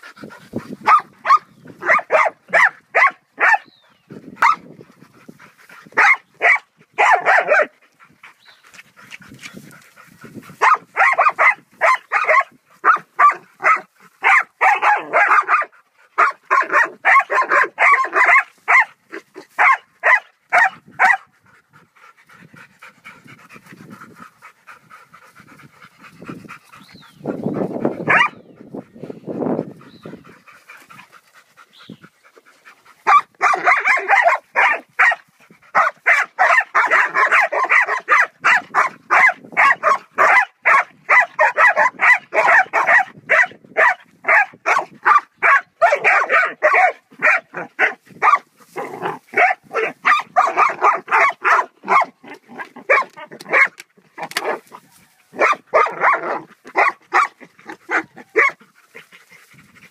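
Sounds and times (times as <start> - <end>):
dogs panting: 0.0 - 3.0, 3.8 - 19.6, 20.3 - 43.0, 44.6 - 59.9
dogs barking: 0.8 - 3.7, 6.0 - 7.8, 10.6 - 21.3, 28.0 - 28.5, 33.0 - 58.7.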